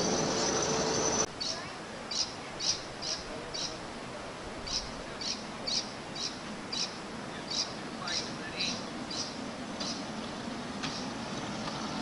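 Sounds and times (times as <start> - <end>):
bird chirping: 0.0 - 3.8, 4.7 - 10.1.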